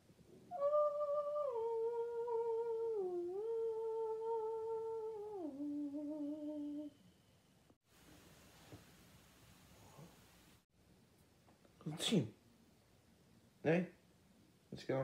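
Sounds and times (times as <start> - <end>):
person humming a slow tune: 0.5 - 7.0.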